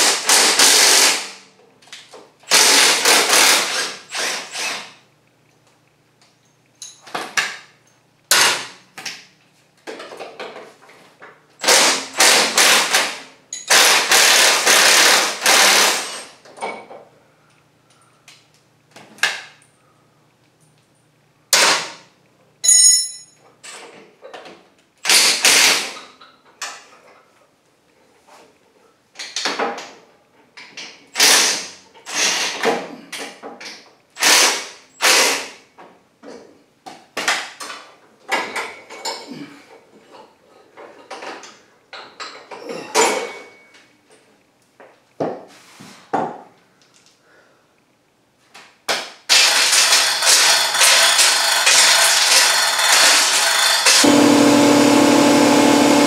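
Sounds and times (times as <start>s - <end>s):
impact wrench hammering: 11.6s - 16.2s, 49.3s - 56.0s.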